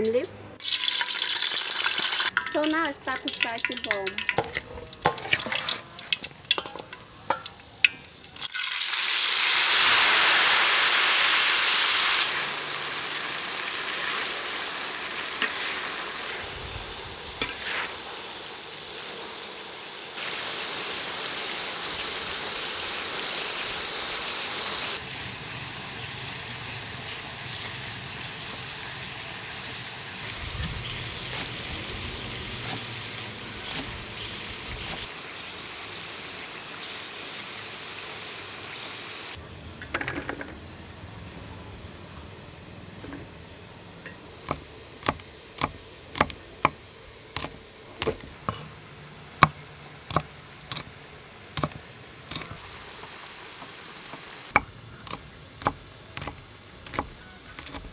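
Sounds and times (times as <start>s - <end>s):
sizzling in hot oil: 0.6s - 39.4s, 50.1s - 57.9s
metal spatula stirring in wok: 3.2s - 7.6s.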